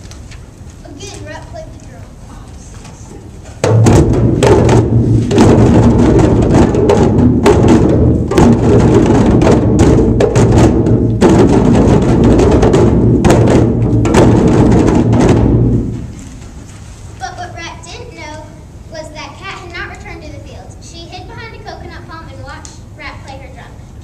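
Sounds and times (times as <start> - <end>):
children playing hand drums: 0.8 - 16.7.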